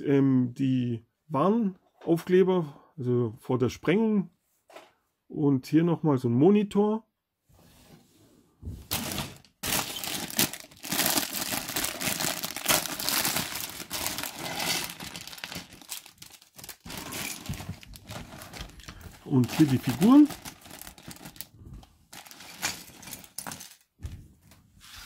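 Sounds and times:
plastic bag crinkling: 0:08.9 - 0:21.5, 0:22.1 - 0:23.8.

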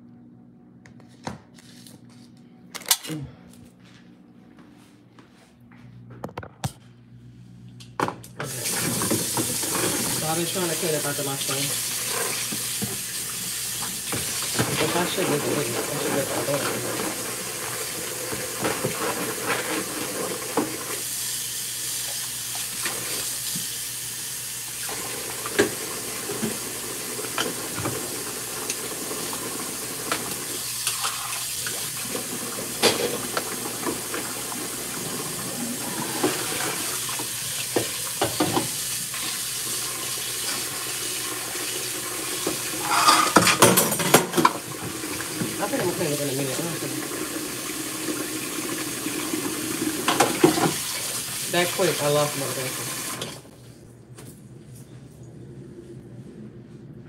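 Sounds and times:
water splashing in sink: 0:08.4 - 0:23.9, 0:24.6 - 0:53.4
dishes clattering: 0:32.7 - 0:34.2, 0:42.5 - 0:44.7
dishes clinking against sink: 0:32.8 - 0:34.2, 0:42.4 - 0:44.7.

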